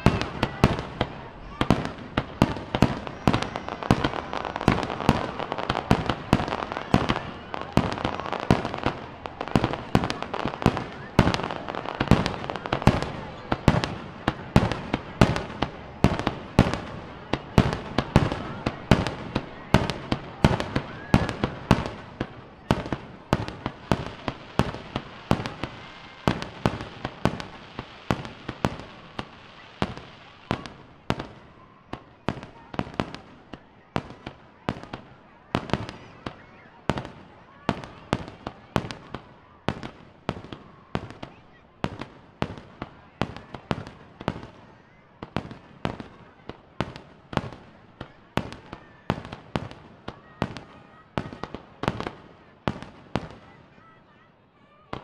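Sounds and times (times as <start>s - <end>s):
steady noisy haze: 0.0s - 38.7s
fireworks bursting: 0.0s - 53.6s.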